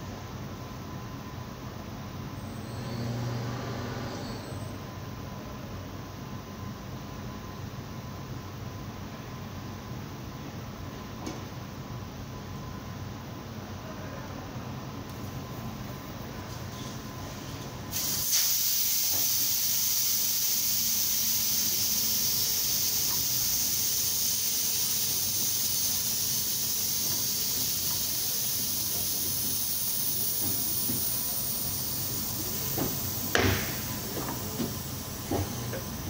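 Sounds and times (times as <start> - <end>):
compressed air hissing: 17.9 - 36.0
sharp knocks: 32.8 - 34.4.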